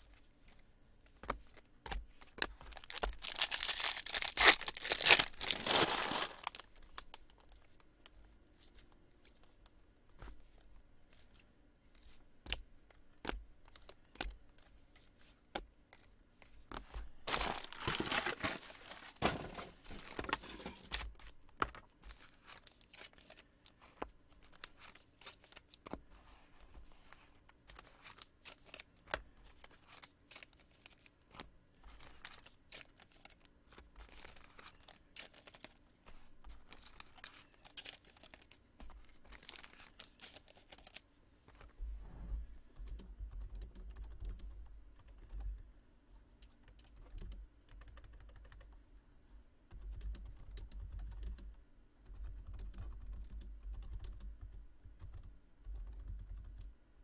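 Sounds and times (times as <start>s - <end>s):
packaging tearing and crinkling: 2.7s - 7.1s, 17.3s - 21.1s
cards and boxes clicking: 16.7s - 24.6s.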